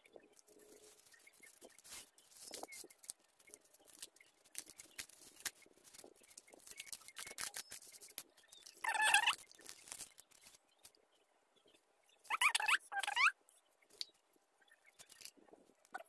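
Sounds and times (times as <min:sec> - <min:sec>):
paper wrapping crinkling: 0:00.4 - 0:11.0.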